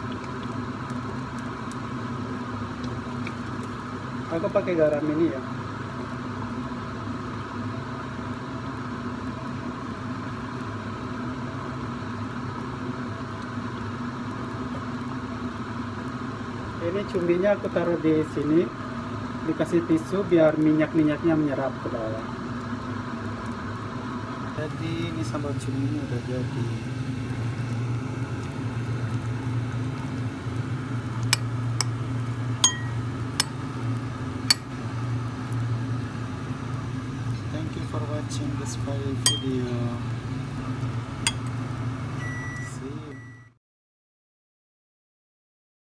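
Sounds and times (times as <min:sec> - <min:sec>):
steady low hum: 0:24.2 - 0:43.4
spoon clinking against plate: 0:32.6 - 0:33.5, 0:39.3 - 0:39.6, 0:41.3 - 0:41.5.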